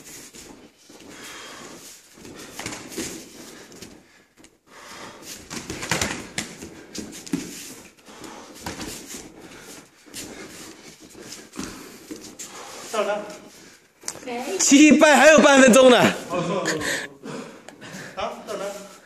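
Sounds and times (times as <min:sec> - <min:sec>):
bare feet moving on mats: 0:00.0 - 0:14.7
hard breathing: 0:00.9 - 0:05.6, 0:06.6 - 0:14.0, 0:16.7 - 0:18.2.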